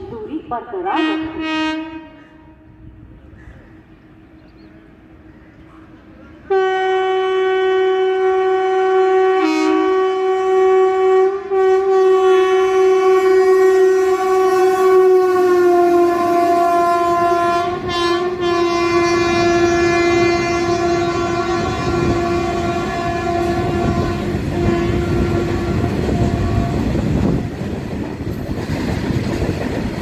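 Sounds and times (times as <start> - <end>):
train horn blast: 0.9 - 3.0, 6.4 - 27.7
rumble of passing wagons: 20.4 - 30.0.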